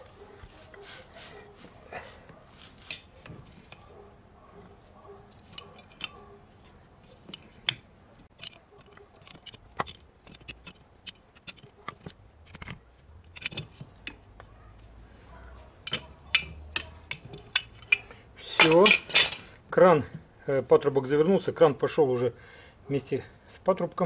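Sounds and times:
pipe wrench clicking on metal: 15.8 - 19.4.

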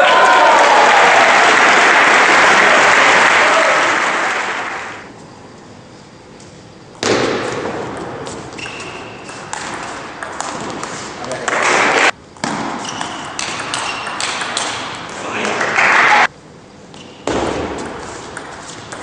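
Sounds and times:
applause: 0.0 - 5.1, 15.5 - 16.3.

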